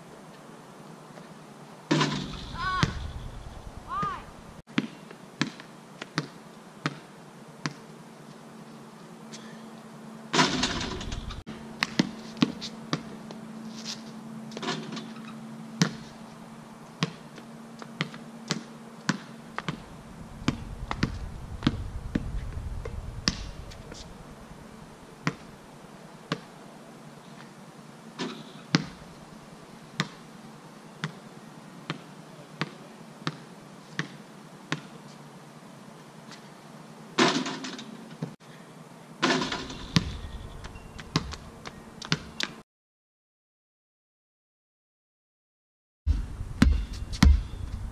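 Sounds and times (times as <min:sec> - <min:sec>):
basketball bouncing on stone: 0:46.6 - 0:47.5.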